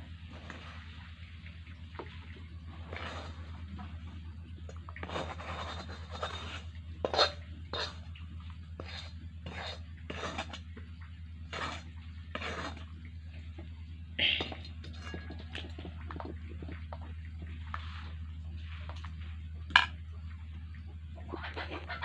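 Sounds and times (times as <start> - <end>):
steady low hum: 0.0 - 22.0
metal spoon scraping steel cookware: 5.1 - 8.0, 8.8 - 10.6.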